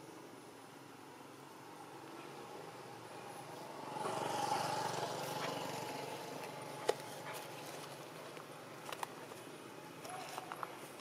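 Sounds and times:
small engine running: 3.6s - 8.0s.

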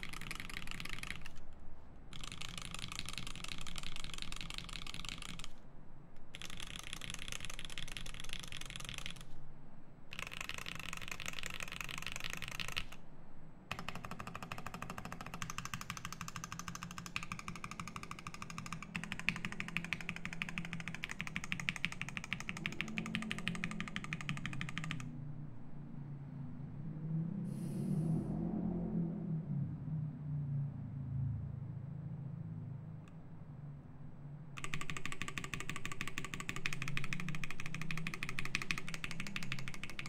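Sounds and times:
mechanical keyboard typing: 0.0s - 1.5s, 2.1s - 5.6s, 6.2s - 9.4s, 10.1s - 13.0s, 13.7s - 25.1s, 34.6s - 40.0s.

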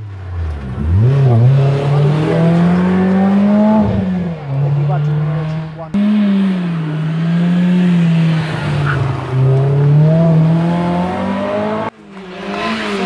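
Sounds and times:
rally car engine revving: 0.1s - 13.0s.

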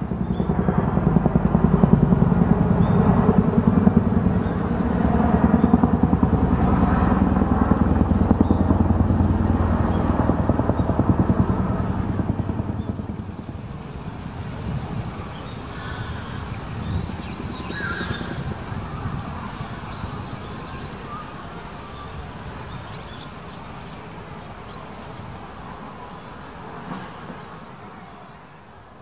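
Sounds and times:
engine running: 0.0s - 15.8s.

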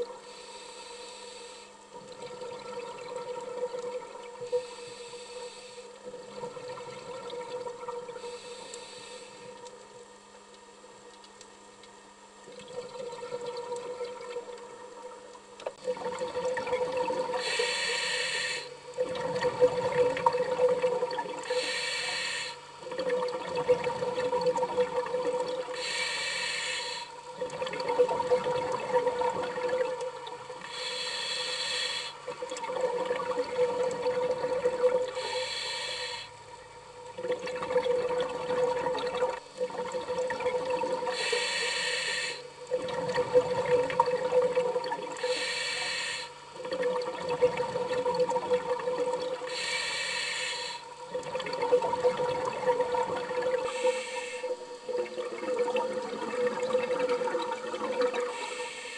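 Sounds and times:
diver breathing through regulator: 8.2s - 9.5s, 17.4s - 18.8s, 21.5s - 22.6s, 25.8s - 27.2s, 30.7s - 32.2s, 35.1s - 36.4s, 41.1s - 42.5s, 45.2s - 46.4s, 49.5s - 51.0s, 53.6s - 54.6s, 58.2s - 58.9s.

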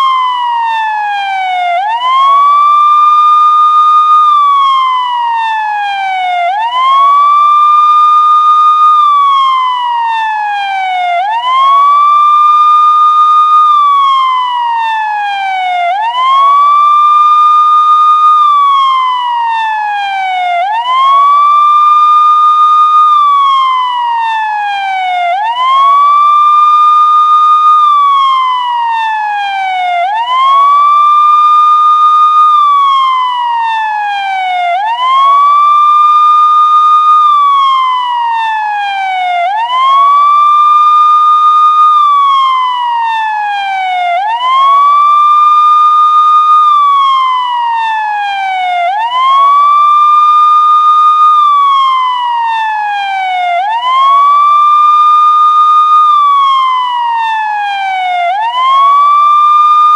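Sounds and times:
police siren wailing: 0.0s - 59.9s.

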